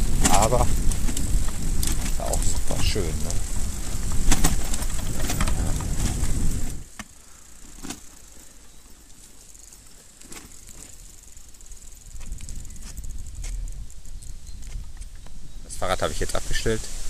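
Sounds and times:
wind rumbling on microphone: 0.0 - 7.0, 11.0 - 17.0
insect chirring: 0.0 - 17.0.

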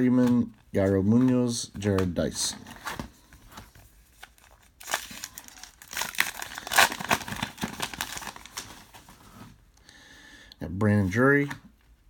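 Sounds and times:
card pack wrapper tearing and crinkling: 1.2 - 9.1.

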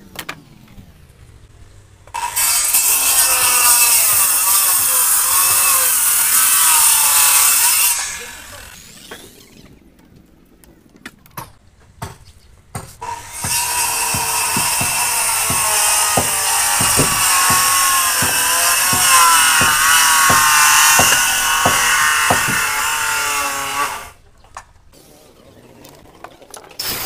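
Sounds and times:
circular saw cutting wood: 2.1 - 9.8, 13.0 - 24.2.

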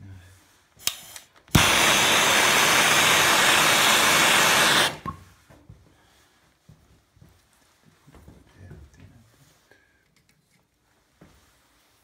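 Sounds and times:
gas torch hissing: 0.8 - 5.2
torch ignition click: 0.8 - 5.2.

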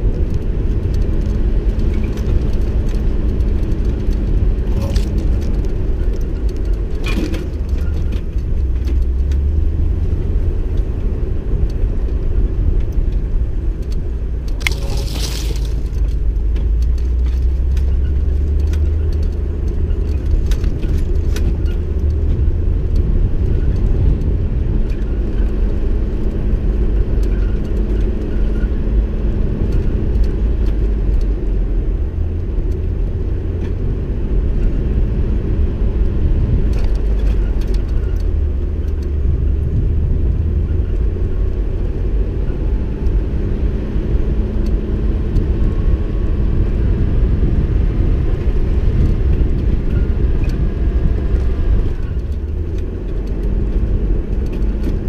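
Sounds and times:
vehicle engine and road rumble: 0.0 - 55.0
rattles and clicks: 0.1 - 9.5, 11.6 - 28.7, 36.6 - 43.2, 48.4 - 55.0.

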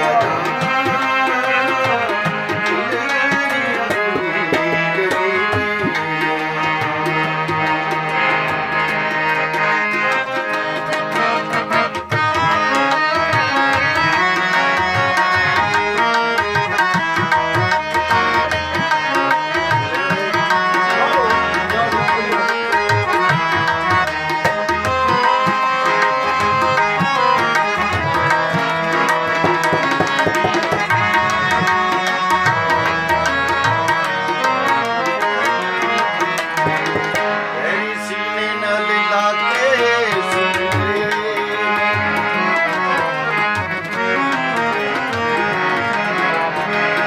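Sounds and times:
harmonium melody: 0.0 - 47.0
tabla drumming: 0.0 - 47.0.

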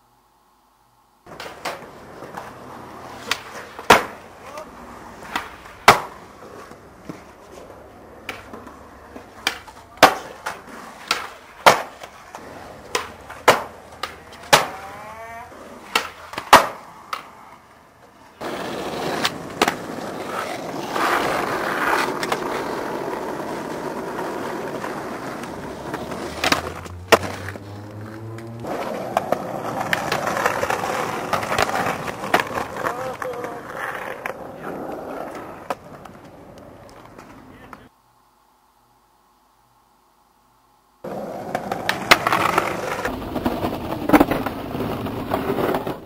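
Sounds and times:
skateboard wheels rolling on concrete: 1.2 - 38.0, 41.0 - 46.0
skateboard wooden clacks: 3.2 - 7.6, 8.2 - 15.0, 15.8 - 17.3, 23.4 - 37.9, 41.1 - 46.0.

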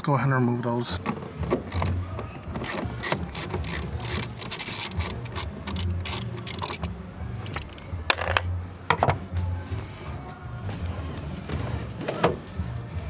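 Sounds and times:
ratchet wrench clicking: 1.6 - 8.4.

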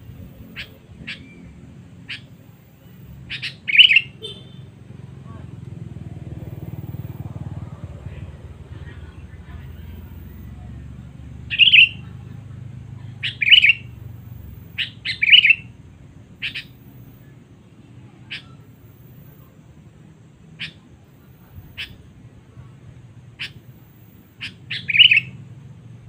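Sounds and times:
bulbul warbled calls: 0.1 - 4.6, 11.5 - 12.2, 13.1 - 14.0, 14.6 - 15.7, 16.4 - 16.9, 18.2 - 18.7, 20.6 - 22.0, 23.4 - 25.4
bird sharp chirps: 0.3 - 4.6, 11.5 - 12.1, 13.2 - 14.0, 14.7 - 15.7, 16.4 - 16.8, 23.4 - 23.7, 24.4 - 25.4.

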